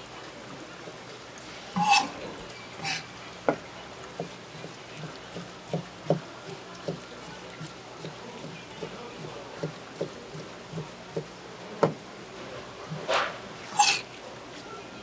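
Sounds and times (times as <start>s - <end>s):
knife tapping cutting board: 5.0s - 7.0s, 7.6s - 12.0s
knife slicing on cutting board: 13.0s - 14.0s.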